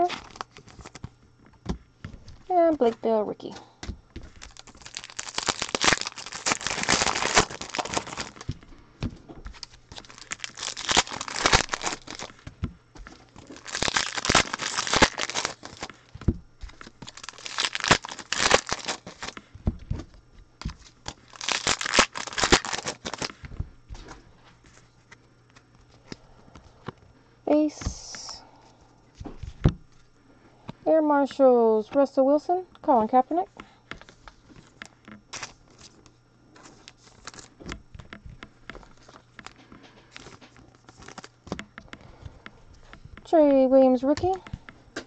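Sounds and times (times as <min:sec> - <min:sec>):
foil wrappers tearing and crinkling: 0:00.0 - 0:01.1, 0:04.2 - 0:08.6, 0:09.4 - 0:23.5, 0:35.3 - 0:38.1, 0:38.7 - 0:41.6.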